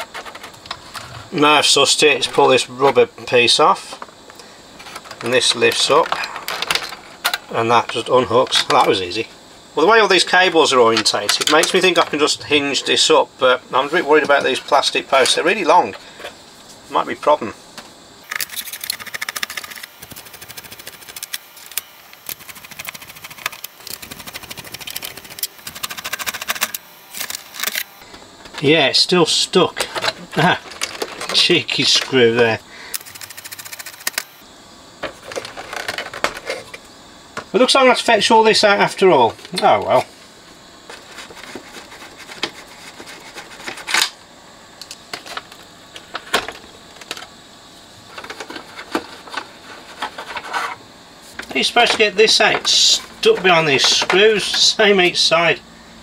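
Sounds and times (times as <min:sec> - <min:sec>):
plastic parts clattering: 0:04.8 - 0:07.4, 0:29.8 - 0:32.1, 0:35.2 - 0:36.7.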